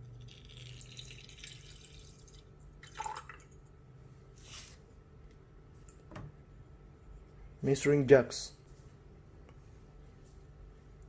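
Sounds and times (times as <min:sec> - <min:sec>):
liquid trickling into glass beaker: 0:00.0 - 0:03.7
liquid dripping: 0:00.0 - 0:03.8.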